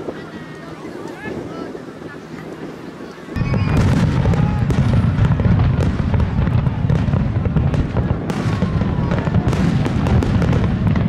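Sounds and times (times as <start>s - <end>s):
firework bursts and crackling pops: 0.0s - 11.0s
faint falling whistle: 3.4s - 4.6s
heavy low rumble: 3.4s - 11.0s.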